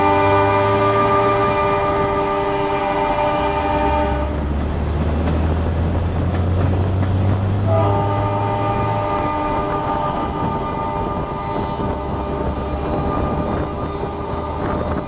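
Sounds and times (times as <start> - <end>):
locomotive air horn: 0.0 - 4.5, 7.6 - 15.0
passing train rumble: 0.0 - 15.0.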